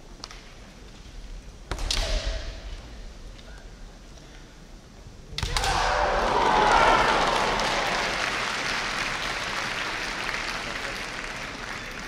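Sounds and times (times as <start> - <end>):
crowd applauding: 5.6 - 12.0.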